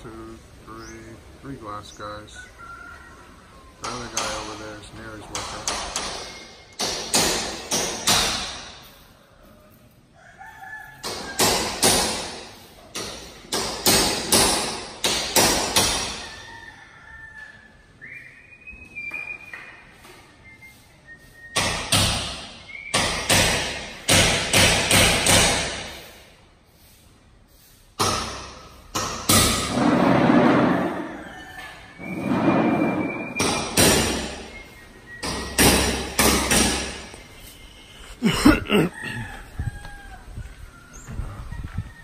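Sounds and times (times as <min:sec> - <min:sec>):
rooster crowing: 0:02.3 - 0:03.9, 0:09.4 - 0:11.5, 0:16.0 - 0:17.9, 0:30.7 - 0:32.3, 0:38.2 - 0:42.0
hammer blows ringing: 0:32.9 - 0:37.3.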